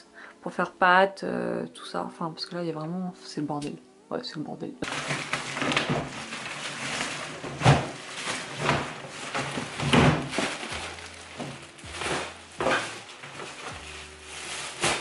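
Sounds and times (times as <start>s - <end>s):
plastic bin bag rustling: 4.8s - 15.0s.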